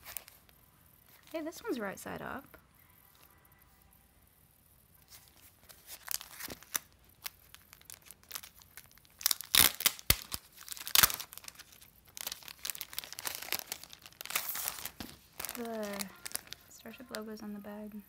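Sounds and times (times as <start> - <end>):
plastic wrapping crinkling: 0.0 - 1.8, 5.0 - 17.9.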